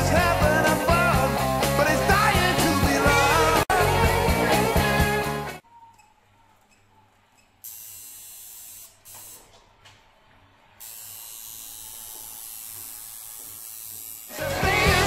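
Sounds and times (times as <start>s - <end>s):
tattoo machine buzzing: 7.6s - 9.5s, 10.8s - 15.0s.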